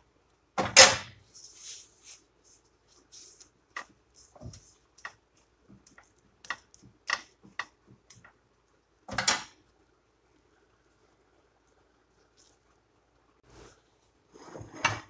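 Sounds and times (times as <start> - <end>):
spatula tapping griddle pan: 5.9 - 8.2
spatula scraping pan: 14.3 - 15.0.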